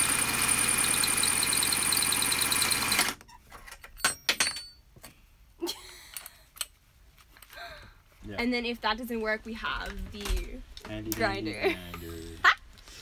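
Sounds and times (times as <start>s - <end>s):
power drill boring into metal: 0.0s - 3.2s.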